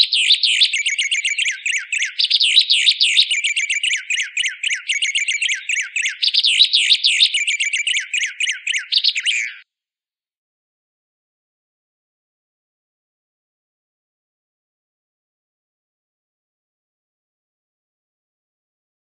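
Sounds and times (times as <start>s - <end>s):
songbird chirps and whistles: 0.0s - 9.6s.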